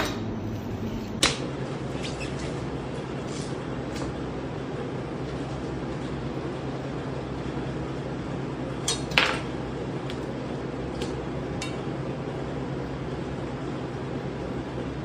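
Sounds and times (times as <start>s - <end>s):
ventilation hum: 0.0s - 15.0s.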